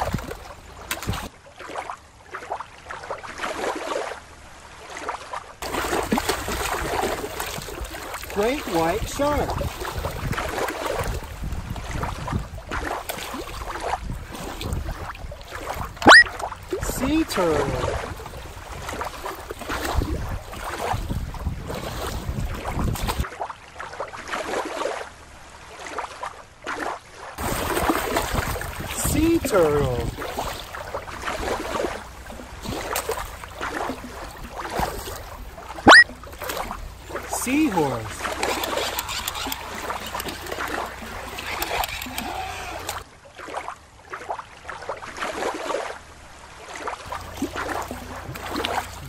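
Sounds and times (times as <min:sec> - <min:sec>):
small water splashes: 0:00.0 - 0:49.0
water lapping against rock: 0:00.0 - 0:49.0
wind rumble on microphone: 0:06.1 - 0:23.3, 0:27.4 - 0:35.7.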